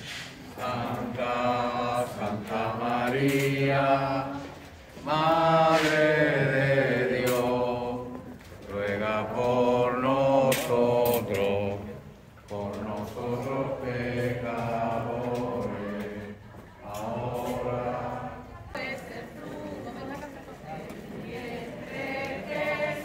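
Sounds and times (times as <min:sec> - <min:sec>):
group of voices chanting prayers: 0:00.0 - 0:19.8.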